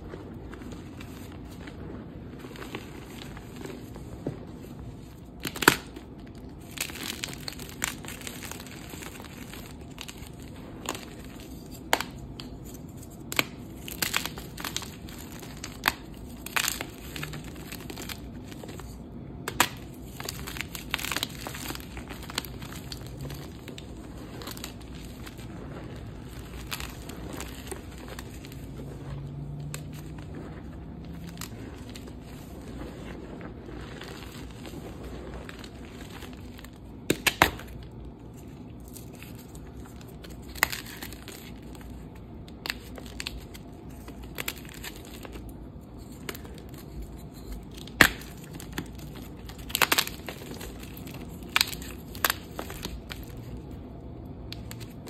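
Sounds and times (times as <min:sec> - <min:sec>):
chalk crushed by hand: 0:05.4 - 0:37.8.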